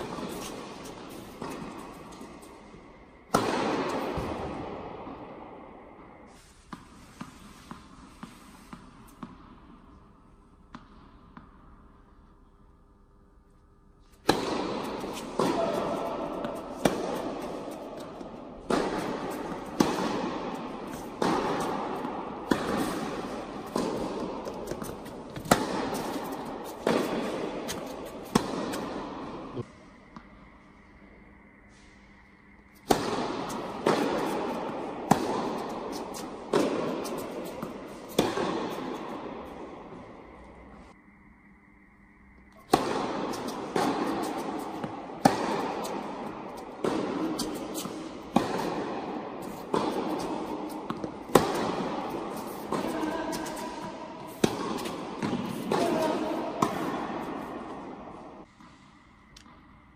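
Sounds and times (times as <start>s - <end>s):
tennis ball hits echoing: 0.0s - 2.4s, 3.2s - 5.8s, 14.2s - 29.7s, 32.8s - 40.7s, 42.6s - 58.5s.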